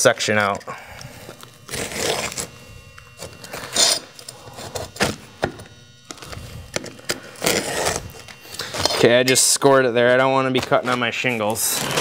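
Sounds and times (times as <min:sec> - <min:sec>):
utility knife scraping shingle: 0:01.3 - 0:09.4.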